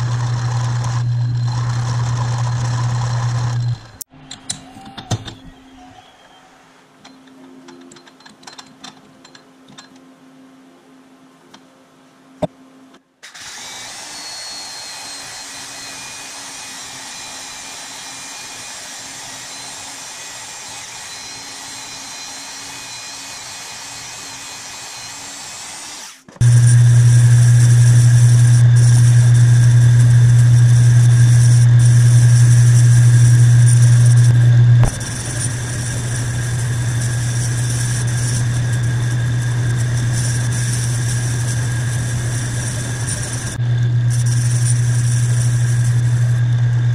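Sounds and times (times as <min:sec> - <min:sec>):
metal lathe running: 0:00.0 - 0:04.0, 0:26.4 - 0:46.9.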